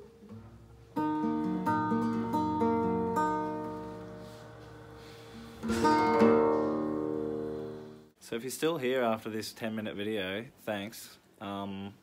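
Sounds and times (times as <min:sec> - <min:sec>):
classical guitar fingerstyle: 0:00.0 - 0:08.1.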